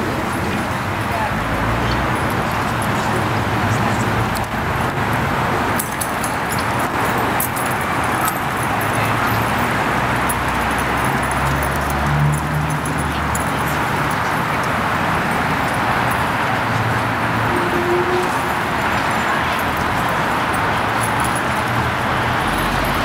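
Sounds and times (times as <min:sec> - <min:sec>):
city traffic noise: 0:00.0 - 0:23.0.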